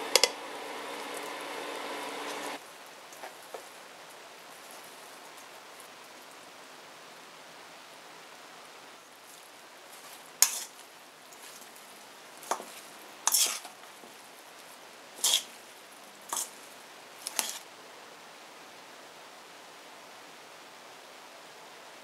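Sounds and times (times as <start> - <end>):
steady hiss: 0.0 - 22.0
metal tongs clinking in a bowl: 10.4 - 10.8, 12.4 - 13.7, 15.2 - 15.5.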